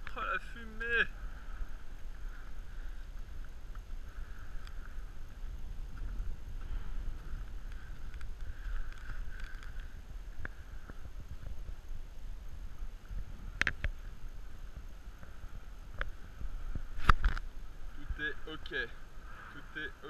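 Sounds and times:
wind buffeting microphone: 0.9 - 20.0
scattered clicks: 7.4 - 11.6, 13.5 - 14.0.

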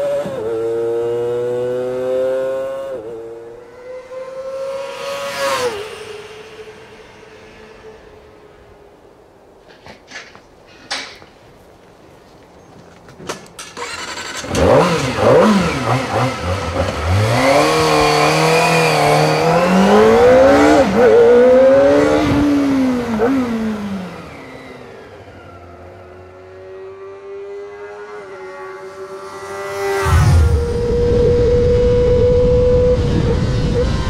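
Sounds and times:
motorcycle engine revving: 0.0 - 8.7, 13.7 - 34.0.

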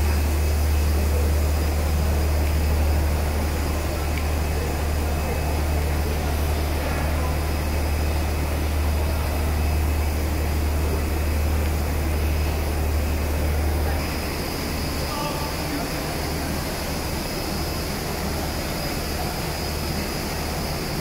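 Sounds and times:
machine drone with low hum: 0.0 - 21.0.

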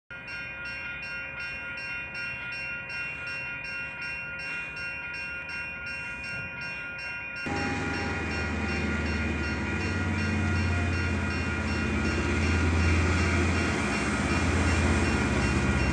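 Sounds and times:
level crossing bell ringing: 0.1 - 15.9
diesel locomotive rumble: 7.5 - 15.9.

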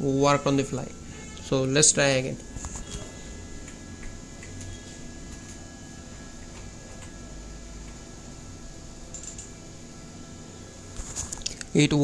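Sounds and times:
low hum and hiss: 0.0 - 12.0
computer mouse clicks: 9.1 - 9.5.

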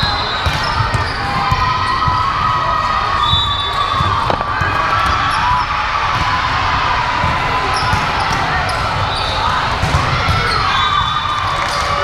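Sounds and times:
sneakers squeaking on court floor: 0.0 - 2.5, 7.7 - 11.2
crowd noise: 0.0 - 12.0
balls thudding: 4.0 - 5.2.

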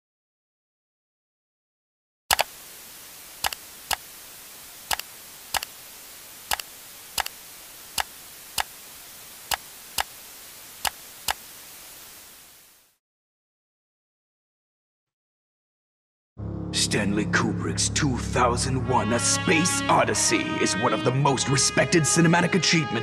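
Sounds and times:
sharp clicks: 2.3 - 2.6, 3.4 - 4.2, 4.8 - 11.6
television static hiss: 2.3 - 13.0.

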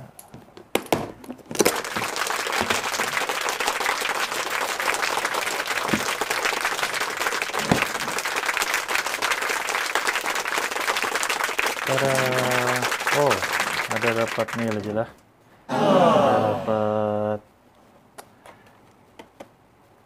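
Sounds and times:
crowd clapping: 1.5 - 15.1.

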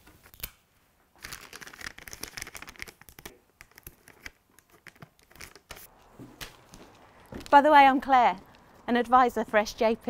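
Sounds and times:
wrapping paper crinkling: 1.2 - 8.9.

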